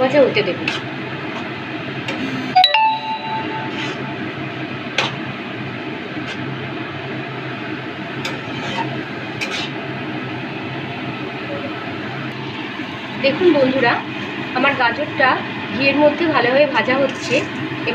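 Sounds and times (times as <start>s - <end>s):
spatula stirring in pan: 0.5s - 1.6s, 6.1s - 6.6s, 8.0s - 9.8s, 16.8s - 17.8s.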